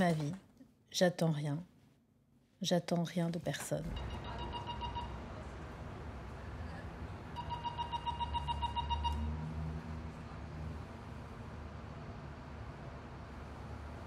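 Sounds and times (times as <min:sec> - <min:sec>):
rapid high beeping: 0:04.0 - 0:05.2, 0:07.4 - 0:09.2.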